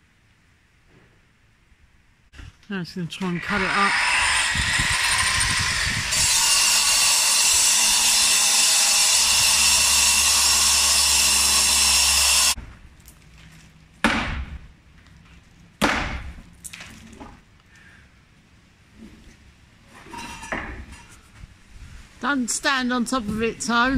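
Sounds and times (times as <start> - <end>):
angle grinder cutting masonry: 3.0 - 12.6
sharp knocks: 14.0 - 14.6.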